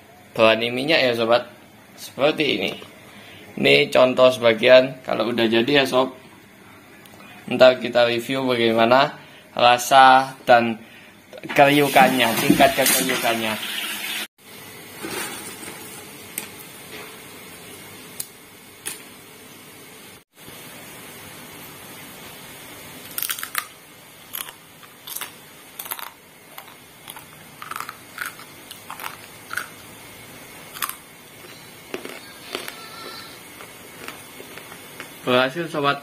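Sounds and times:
chips crunching when chewed: 0:23.0 - 0:29.9, 0:30.7 - 0:35.2.

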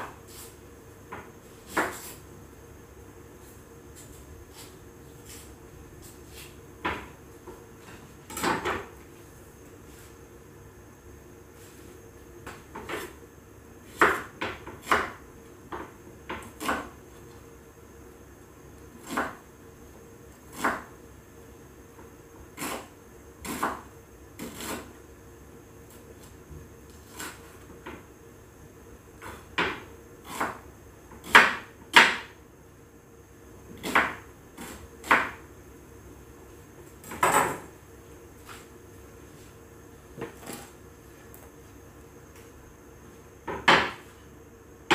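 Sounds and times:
knife chopping on wooden board: 0:01.1 - 0:02.2, 0:13.9 - 0:17.0, 0:19.0 - 0:19.4, 0:20.5 - 0:20.9, 0:29.2 - 0:30.6, 0:31.2 - 0:32.3, 0:33.7 - 0:35.4, 0:43.4 - 0:44.0.

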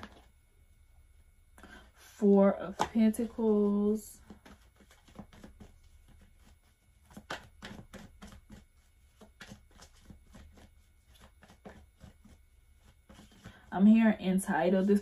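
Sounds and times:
cards being shuffled: 0:02.7 - 0:03.4, 0:04.2 - 0:13.6.

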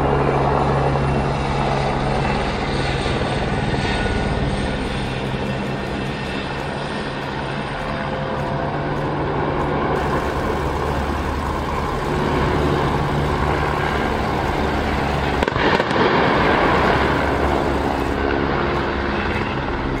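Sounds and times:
helicopter hovering: 0:00.0 - 0:20.0
loud noisy rushing: 0:10.0 - 0:20.0.

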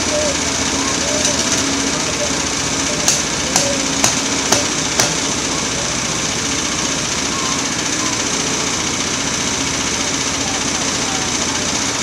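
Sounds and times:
sawmill engine idling: 0:00.0 - 0:12.0
sharp knocks: 0:03.0 - 0:05.4.

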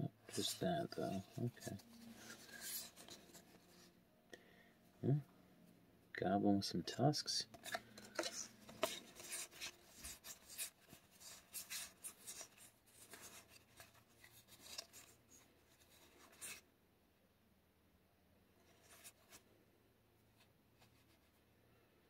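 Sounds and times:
trading cards sliding and flicking: 0:00.3 - 0:03.8, 0:07.5 - 0:15.2.

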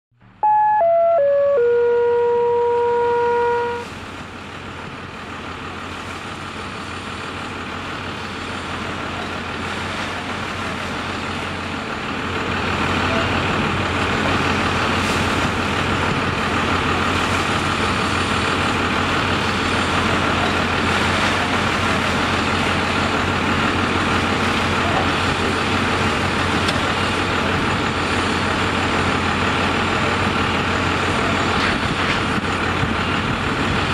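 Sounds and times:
fire truck engine running: 0:00.2 - 0:33.9
electronic chime jingle: 0:00.4 - 0:03.8.

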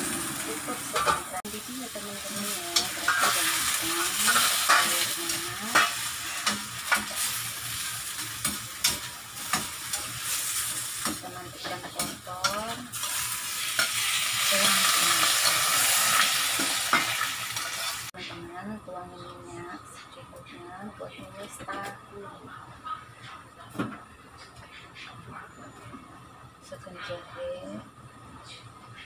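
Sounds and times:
vegetables sizzling in a pan: 0:00.0 - 0:18.2
spatula scraping a pan: 0:02.4 - 0:14.7.

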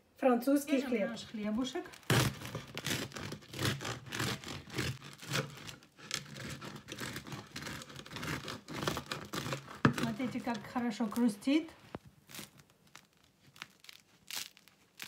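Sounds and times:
knife sawing crusty bread: 0:01.9 - 0:11.3.

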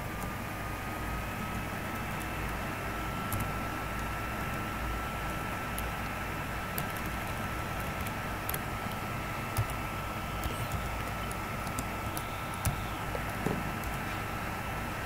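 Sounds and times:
faint high whine: 0:00.0 - 0:15.0
computer keyboard keystrokes: 0:03.2 - 0:04.6, 0:06.6 - 0:14.1.

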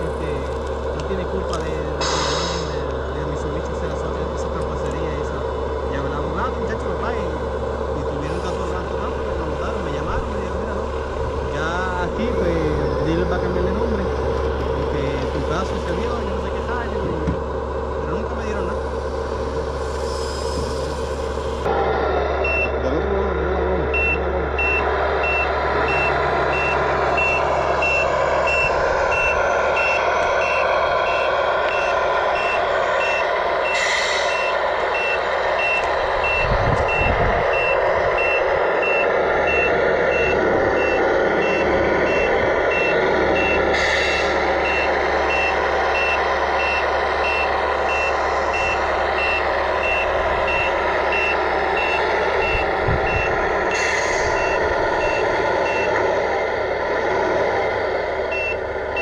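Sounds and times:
diesel engine running: 0:00.0 - 0:59.0
brief hisses: 0:02.0 - 0:02.7
reversing beeper beeps: 0:22.4 - 0:56.1, 0:58.3 - 0:59.0.

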